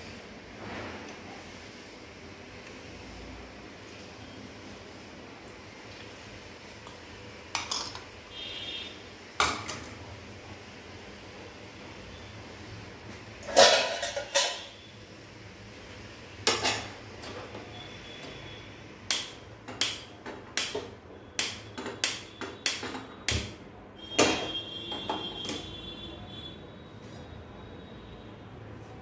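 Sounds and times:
metal wok and utensils clanking: 13.4 - 14.9, 16.4 - 17.6.

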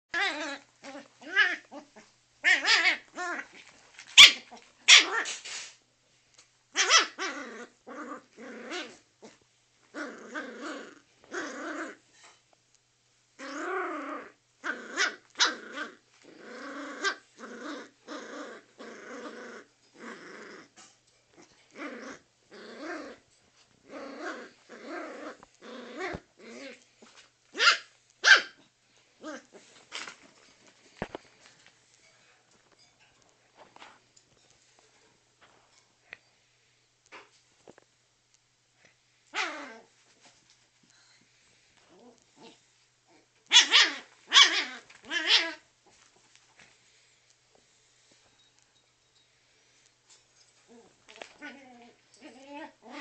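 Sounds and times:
dog growling: 0.2 - 3.6, 6.8 - 12.0, 13.4 - 23.2, 23.8 - 27.1, 50.7 - 53.0.

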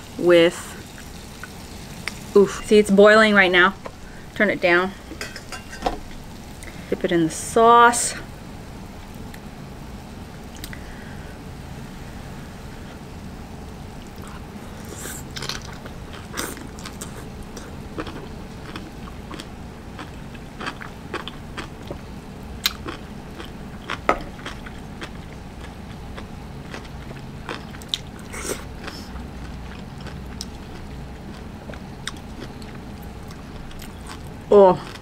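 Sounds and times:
chewing mouth sounds: 14.1 - 22.0, 22.6 - 35.0.

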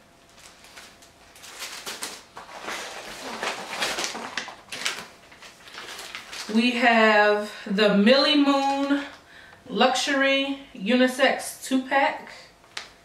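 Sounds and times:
plastic wrapping crinkling: 0.2 - 6.9, 8.4 - 9.2.

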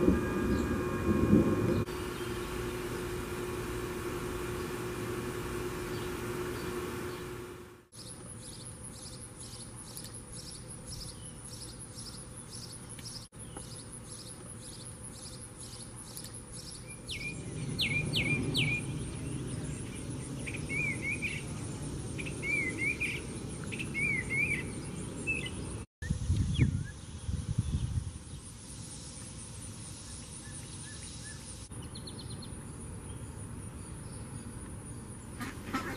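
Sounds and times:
high pulses: 0.0 - 7.8
sparrow chirping: 8.0 - 25.8
high insect drone: 17.1 - 25.8.

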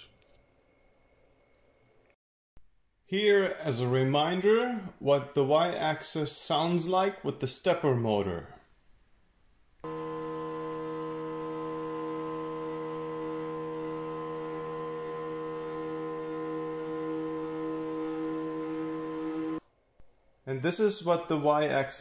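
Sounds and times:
stepper motor humming: 9.8 - 19.6.

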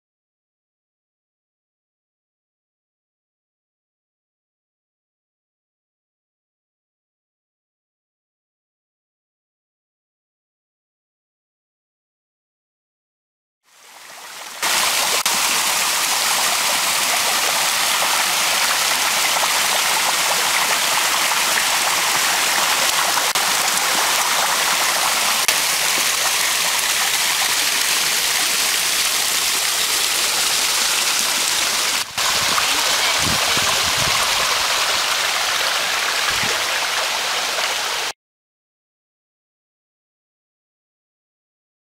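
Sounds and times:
waterfall rushing over rocks: 13.8 - 38.1.

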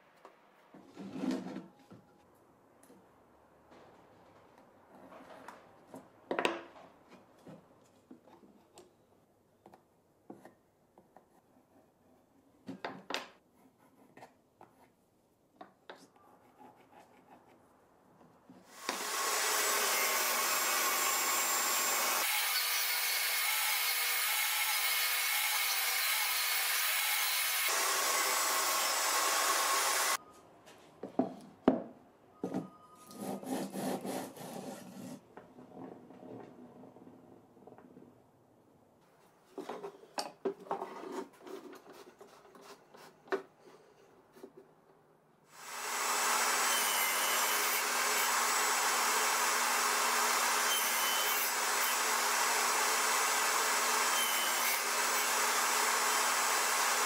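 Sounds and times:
table saw cutting wood: 18.7 - 30.2, 45.6 - 57.0.

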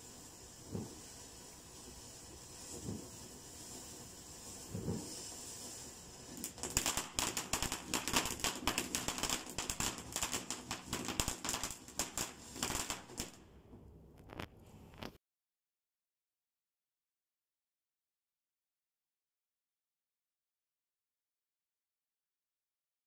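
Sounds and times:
firework hissing and crackling: 0.0 - 13.5, 14.2 - 15.2.

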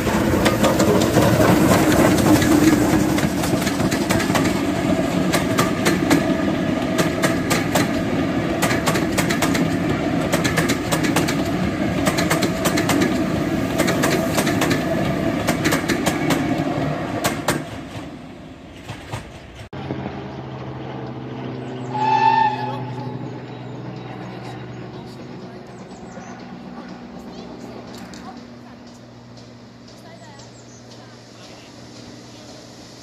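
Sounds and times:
wheels clicking over rail joints: 0.0 - 16.4
train coaches rumbling past: 0.0 - 33.0.

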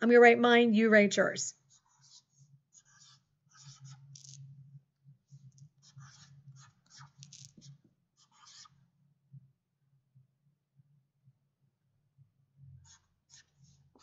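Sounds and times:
marker scratching on whiteboard: 1.6 - 4.6, 5.2 - 8.9, 12.8 - 14.0
marker squeaks: 1.7 - 4.5, 5.4 - 8.8, 12.9 - 14.0.

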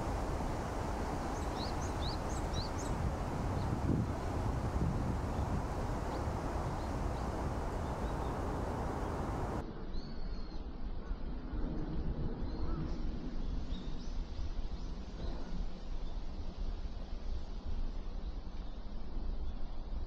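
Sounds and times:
wind rumble on microphone: 0.0 - 9.8, 10.9 - 20.0.

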